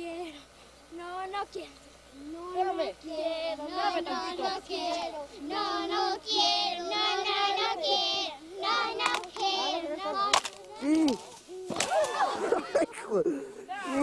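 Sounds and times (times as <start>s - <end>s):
sharp crack: 10.3s - 12.2s.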